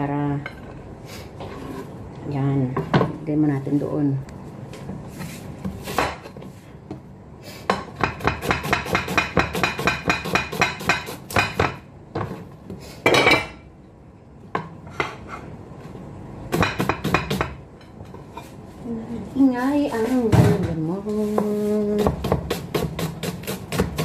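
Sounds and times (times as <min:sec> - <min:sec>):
knife chopping onion on board: 0:07.7 - 0:11.9, 0:16.5 - 0:17.6, 0:21.3 - 0:24.0.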